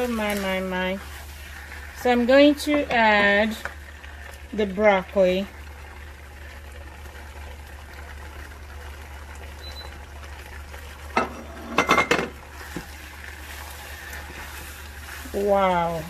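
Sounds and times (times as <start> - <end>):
spatula stirring pasta in a pan: 0.0 - 4.7, 12.4 - 16.0.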